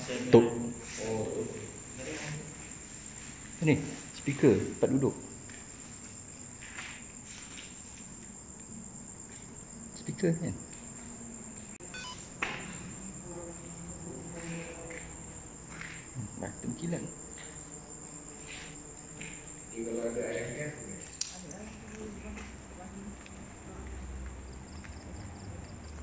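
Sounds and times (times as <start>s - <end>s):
crickets chirring: 0.0s - 26.0s
soft short sounds: 12.0s - 12.2s.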